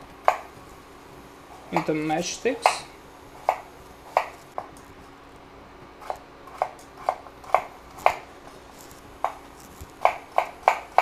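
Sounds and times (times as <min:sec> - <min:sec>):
knife chopping on wooden board: 0:02.6 - 0:04.7, 0:06.0 - 0:08.3, 0:10.0 - 0:11.0.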